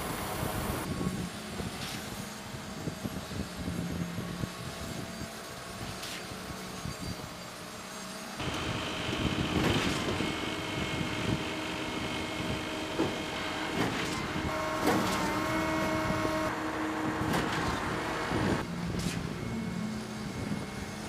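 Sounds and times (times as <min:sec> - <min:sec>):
heavy truck machinery humming: 0:00.0 - 0:00.9, 0:08.4 - 0:21.0
held whining tones: 0:08.4 - 0:21.0.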